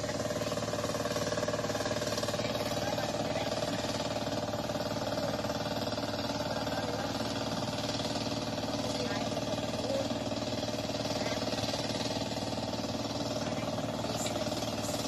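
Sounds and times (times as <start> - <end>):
tractor engine running: 0.0 - 15.0.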